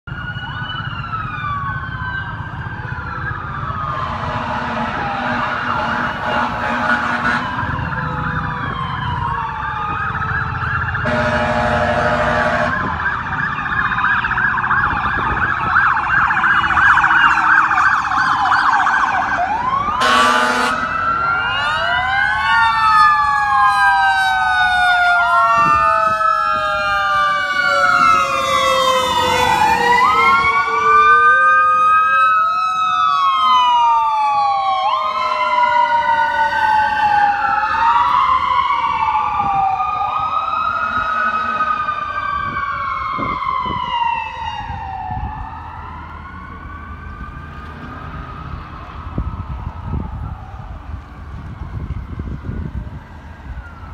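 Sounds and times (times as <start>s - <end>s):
emergency vehicle sirens: 0.0s - 53.9s
vehicle horn blasts: 4.1s - 7.5s, 11.0s - 12.8s, 20.0s - 20.8s.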